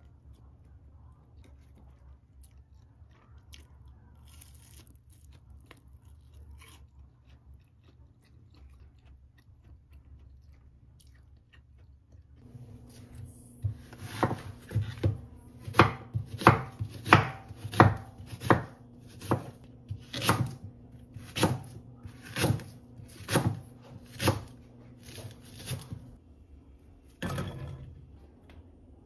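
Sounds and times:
knife chopping on wooden board: 13.6 - 26.1.

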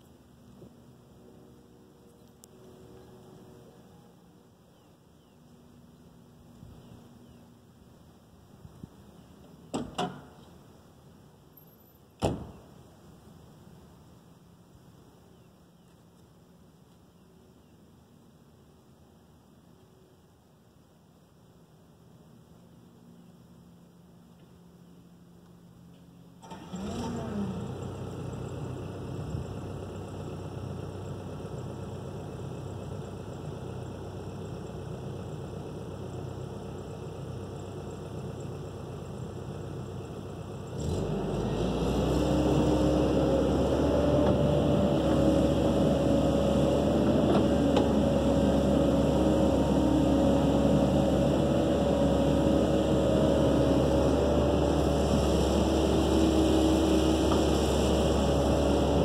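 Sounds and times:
excavator diesel engine running: 26.4 - 59.0.

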